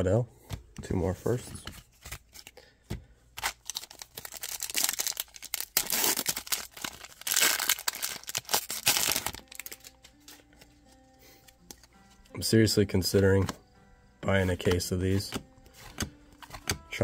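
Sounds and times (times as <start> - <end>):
foil wrapper crinkling: 3.4 - 10.4.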